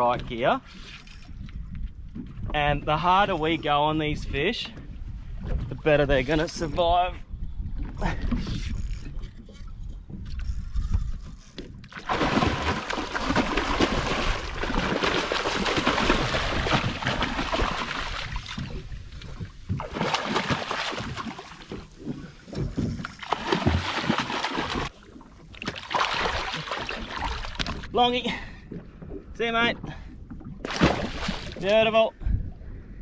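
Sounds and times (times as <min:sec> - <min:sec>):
water rushing and splashing: 0:12.0 - 0:22.4, 0:23.1 - 0:27.9.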